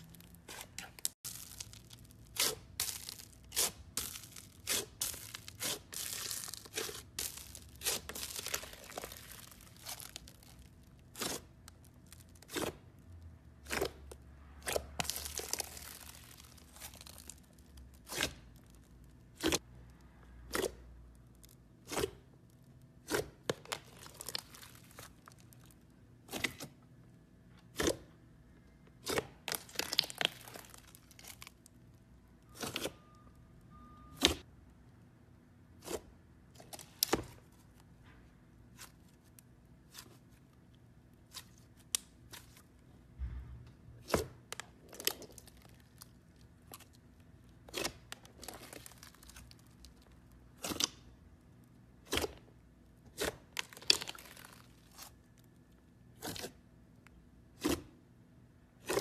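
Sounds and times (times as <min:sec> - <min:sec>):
slime crackling: 0:00.0 - 0:13.0, 0:13.6 - 0:19.7, 0:20.5 - 0:26.6, 0:29.0 - 0:31.8, 0:44.0 - 0:51.1, 0:53.1 - 0:55.5.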